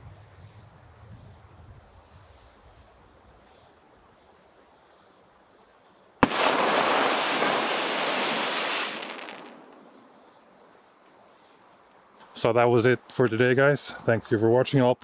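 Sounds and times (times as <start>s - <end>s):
firework bang: 6.2s - 10.0s
firework crackling: 6.2s - 10.5s.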